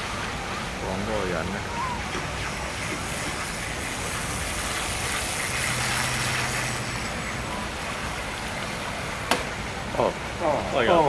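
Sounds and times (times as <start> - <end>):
low engine-like hum: 0.0 - 11.0
outdoor background noise: 0.0 - 11.0.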